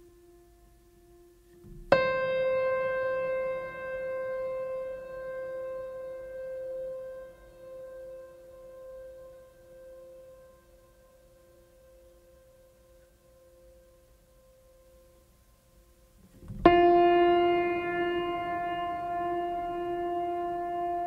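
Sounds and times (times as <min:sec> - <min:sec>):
faint held music tones: 0:00.0 - 0:21.0
struck piano-like note ringing: 0:16.4 - 0:21.0.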